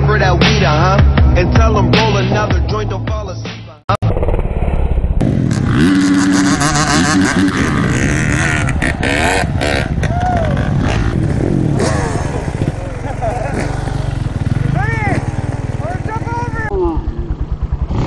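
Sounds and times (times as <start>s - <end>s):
background music: 0.0s - 3.8s
dirt bike engine revving: 4.0s - 18.0s
rough rushing noise: 4.0s - 18.0s.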